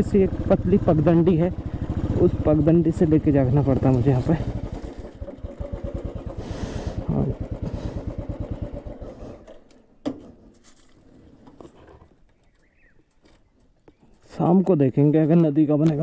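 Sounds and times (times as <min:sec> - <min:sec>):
motorcycle engine idling: 0:00.0 - 0:09.8.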